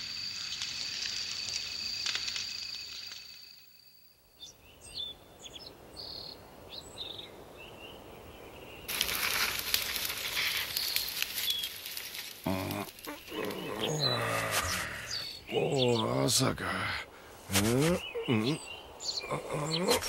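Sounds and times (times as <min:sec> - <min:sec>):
steady high hiss: 0:00.0 - 0:04.4
small birds chirping: 0:04.4 - 0:20.0.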